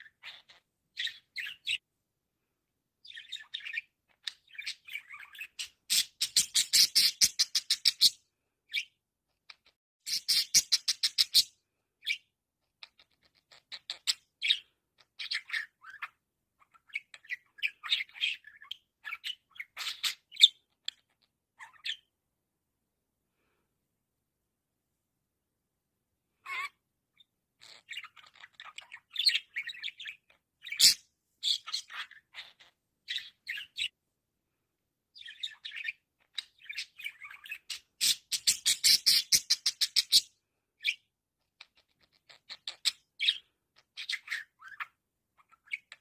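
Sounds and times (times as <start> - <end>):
budgerigar chattering: 4.5 - 8.1, 36.6 - 40.2.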